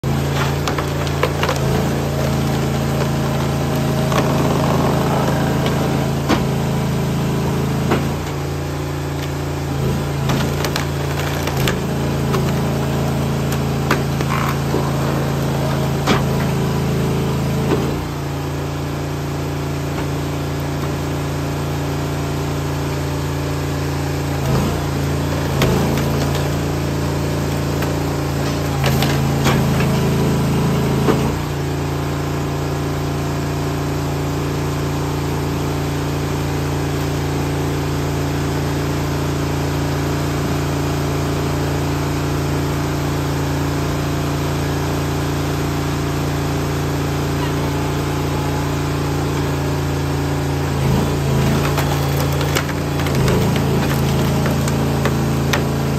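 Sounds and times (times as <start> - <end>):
wood splitter engine running: 0.0 - 55.9
log cracking apart: 10.2 - 14.8, 50.9 - 55.9.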